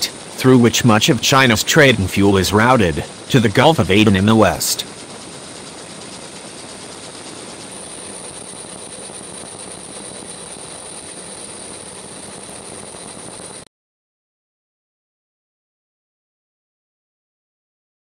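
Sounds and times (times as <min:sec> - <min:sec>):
helicopter engine and rotor noise: 0:00.0 - 0:13.7.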